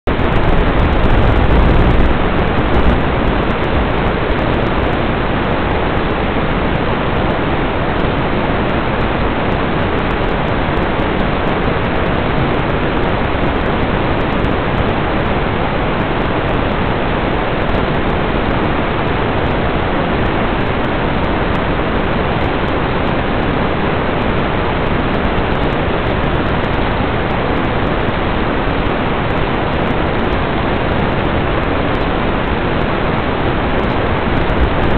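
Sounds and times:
steady static hiss: 0.0s - 34.9s
low rumble: 0.1s - 4.2s.

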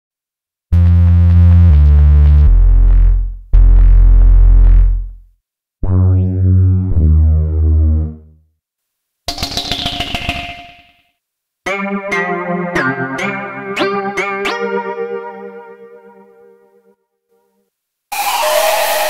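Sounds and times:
deep sub bass synthesizer notes: 0.7s - 8.4s.

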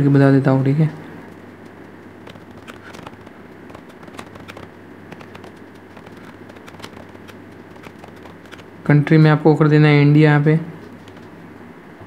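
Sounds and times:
low steady hum: 0.0s - 12.0s
keyboard key clicks: 2.2s - 8.7s.

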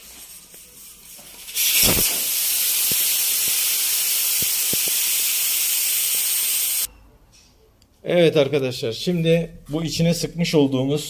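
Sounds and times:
air hissing from tyre: 1.1s - 6.9s.

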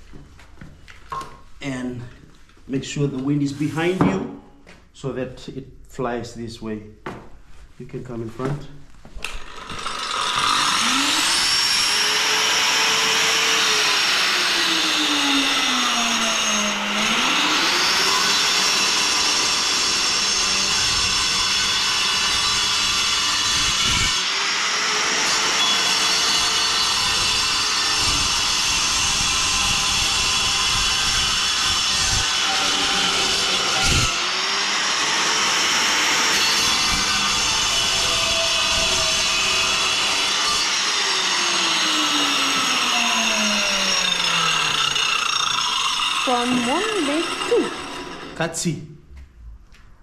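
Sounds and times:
angle grinder cutting tile: 9.2s - 48.4s.

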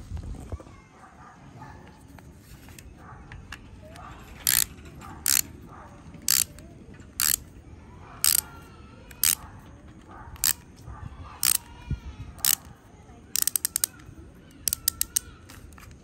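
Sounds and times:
toy launcher ratcheting clicks: 4.2s - 5.5s, 6.2s - 7.5s, 8.2s - 9.5s, 10.4s - 10.7s, 11.4s - 11.7s, 12.4s - 16.0s.

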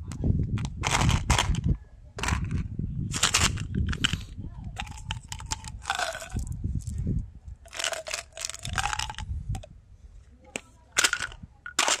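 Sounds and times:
gum pellets rattling in plastic bottle: 0.6s - 4.2s, 4.8s - 6.5s, 7.7s - 9.3s, 11.0s - 12.0s.

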